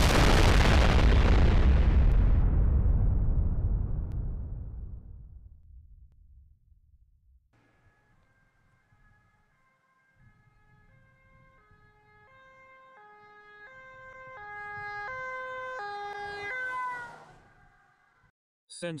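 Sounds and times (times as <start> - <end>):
two-tone ambulance siren: 7.6 - 18.3.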